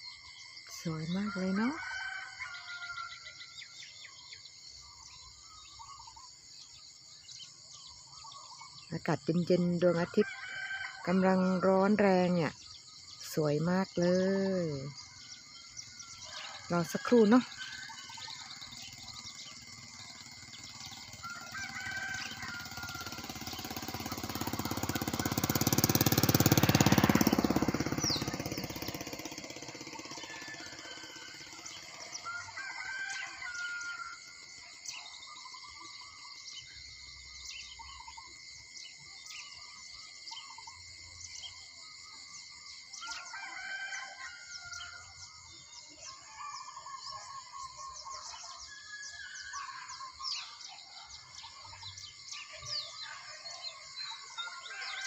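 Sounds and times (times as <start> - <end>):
roosters crowing: 1.1 - 4.1, 9.9 - 11.9, 15.0 - 35.2, 42.9 - 55.0.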